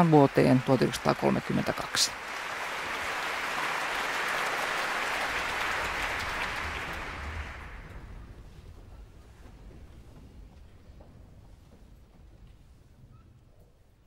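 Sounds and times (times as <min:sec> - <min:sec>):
audience applauding: 0:00.0 - 0:08.6.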